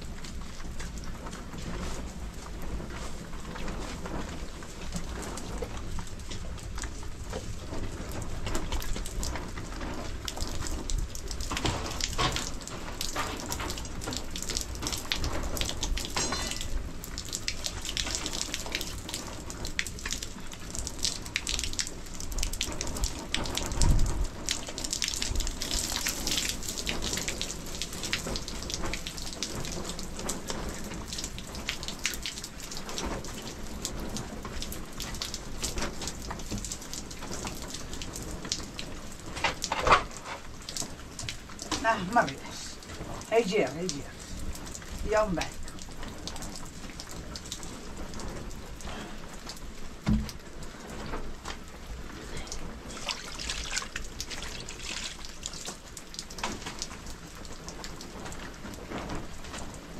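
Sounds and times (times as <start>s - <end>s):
rain pattering and dripping: 0.0s - 59.9s
dull thump: 50.0s - 50.4s.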